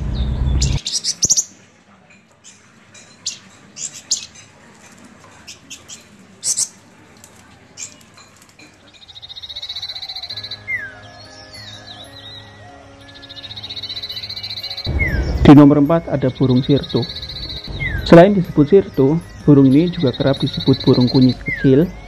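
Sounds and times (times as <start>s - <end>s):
bird chirping and trilling: 0.0s - 1.6s, 2.4s - 4.6s, 8.9s - 22.0s.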